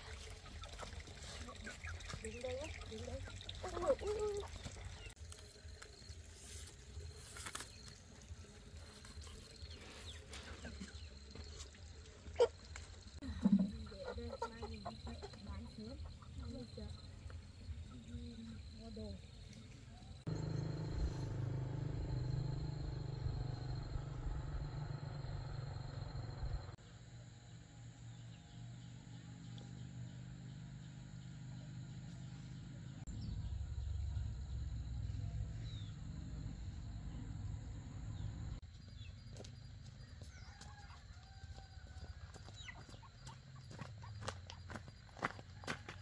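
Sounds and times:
low steady rumble: 19.8 - 28.0, 33.0 - 38.6
chickens calling: 41.9 - 44.4.

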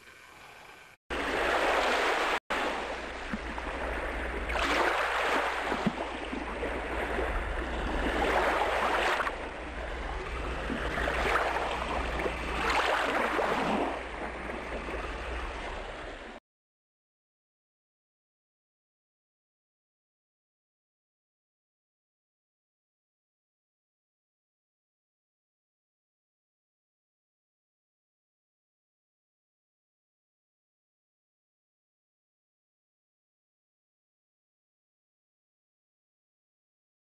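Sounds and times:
waves washing in: 0.0 - 16.4.

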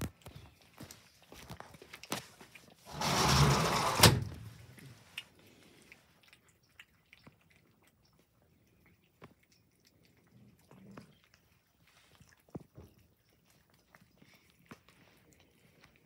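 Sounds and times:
cats chewing wet food: 0.0 - 2.9, 4.5 - 16.0
rustling: 0.0 - 6.1.

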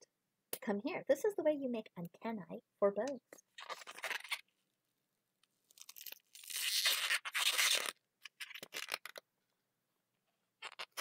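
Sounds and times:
balloon rubbing scratchily: 6.4 - 9.2, 10.6 - 11.0.

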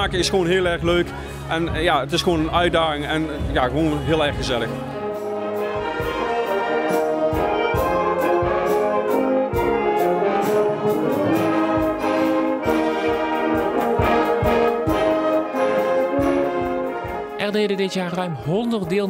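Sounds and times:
steady drum beat: 1.7 - 17.9
wind band brass playing: 4.0 - 18.5.

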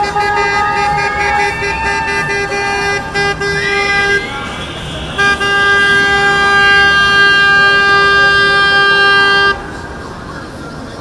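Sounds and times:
boat horn blasts: 0.0 - 9.8.

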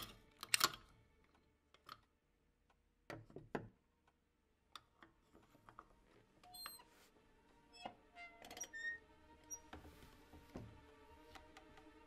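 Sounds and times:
padlock metal clicks: 0.0 - 0.9.

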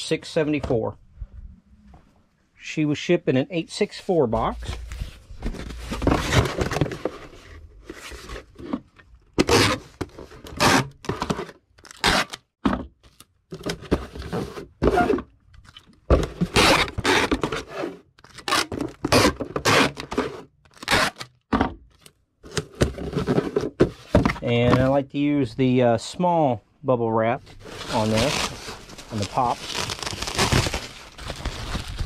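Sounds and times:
cardboard box scraping: 4.9 - 8.8, 27.6 - 32.0
bubble wrap rustling: 27.5 - 32.0.

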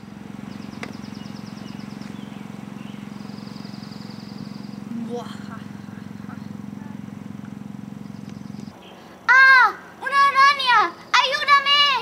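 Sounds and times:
low pulsing motor hum: 0.0 - 9.0
bird trilling: 0.0 - 10.0.

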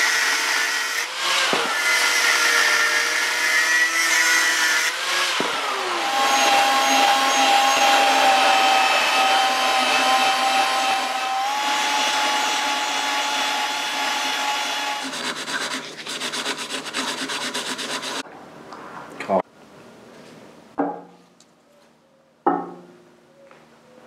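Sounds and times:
cordless drill motor whine: 0.0 - 15.0
abrasive grinding rub in metal tube: 14.1 - 18.2.

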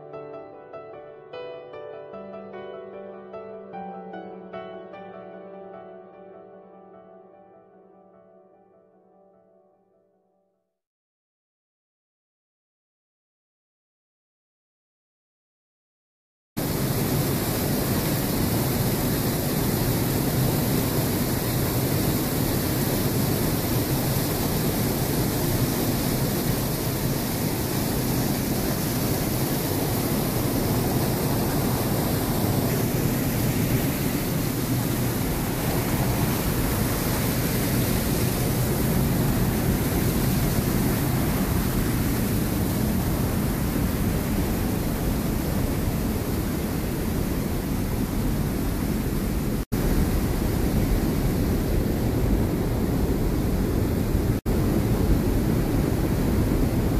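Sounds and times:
stream water rushing: 16.6 - 51.2.

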